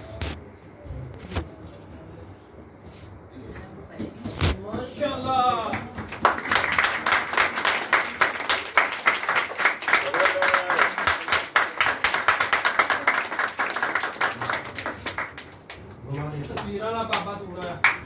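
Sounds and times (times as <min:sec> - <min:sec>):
audience applauding: 0:05.7 - 0:17.2.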